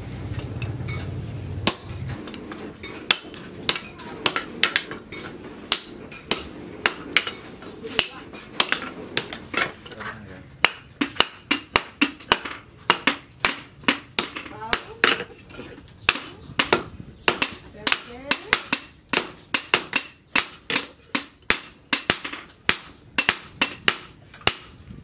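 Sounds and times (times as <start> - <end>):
hammer striking metal on anvil: 0.3 - 7.4, 16.1 - 24.8.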